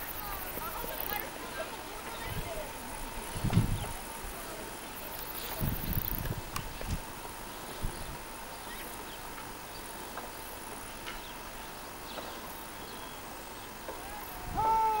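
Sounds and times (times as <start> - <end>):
insects hissing: 0.0 - 15.0
call sliding down in pitch: 14.0 - 15.0.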